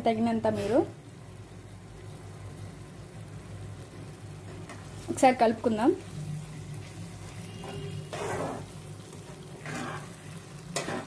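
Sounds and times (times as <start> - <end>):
spatula scraping pan: 6.0 - 11.0.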